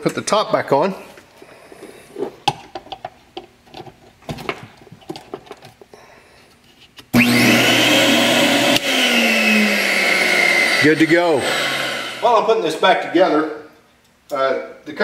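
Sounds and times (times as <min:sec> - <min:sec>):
handling clicks and knocks: 0:02.4 - 0:05.9
central vacuum motor whining: 0:07.2 - 0:12.8.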